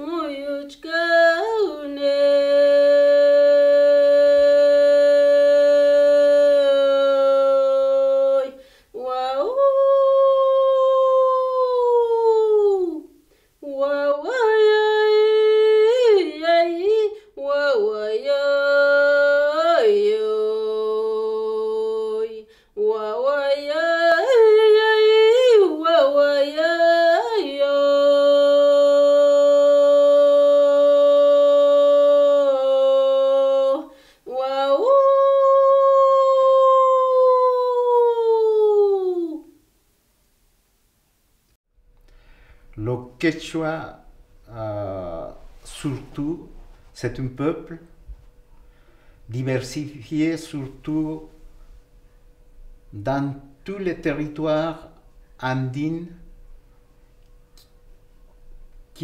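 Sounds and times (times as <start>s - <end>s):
woman singing unaccompanied: 0.0s - 39.7s.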